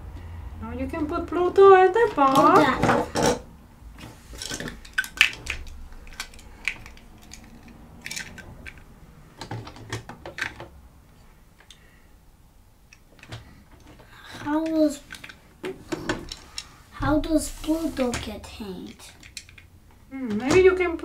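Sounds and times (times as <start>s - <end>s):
plastic toy pieces clicking: 2.1s - 3.4s, 4.4s - 10.6s, 12.9s - 15.4s, 18.8s - 20.6s.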